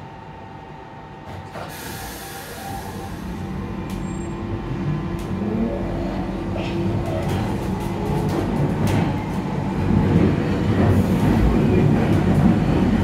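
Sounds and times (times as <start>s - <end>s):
train motor hum: 1.2s - 13.0s
train air hiss: 1.6s - 4.3s
train wheels rumbling: 2.5s - 13.0s.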